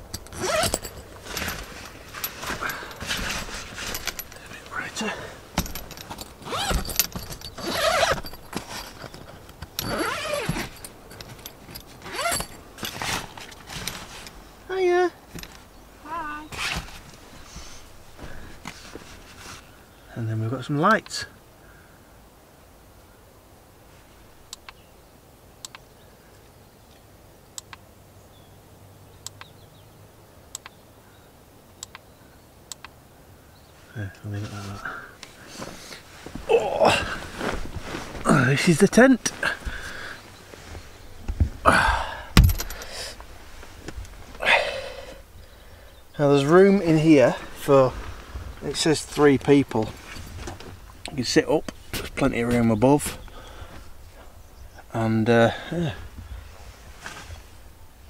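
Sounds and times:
tent fabric rustling: 0.0s - 19.9s, 33.8s - 42.4s, 43.2s - 44.8s, 46.2s - 54.3s, 56.0s - 57.8s.

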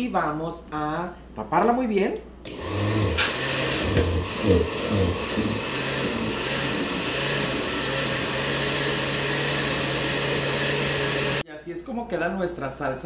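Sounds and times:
blender running: 2.5s - 11.4s.

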